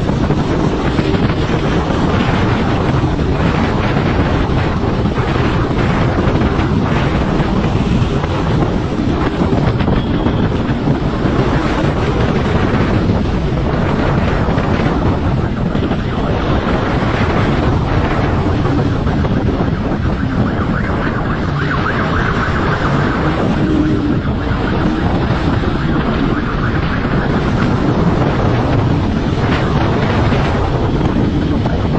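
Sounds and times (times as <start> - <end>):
wind noise on microphone: 0.0 - 31.9
motorcycle engine running: 6.0 - 16.2.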